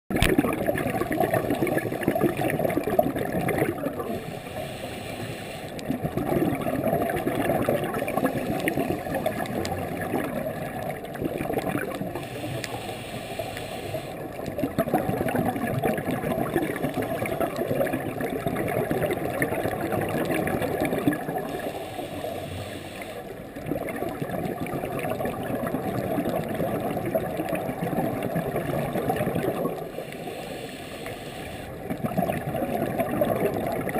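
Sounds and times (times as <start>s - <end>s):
scuba regulator exhale bubbling: 0.1s - 33.9s
scuba regulator inhale hiss: 4.1s - 5.8s, 12.2s - 14.2s, 21.4s - 23.4s, 29.9s - 31.8s.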